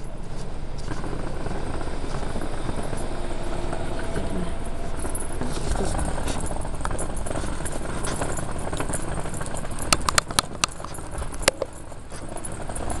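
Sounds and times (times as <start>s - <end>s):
street noise: 0.0s - 13.0s
camera handling rumble: 5.4s - 12.3s
sharp clicks: 6.4s - 11.9s.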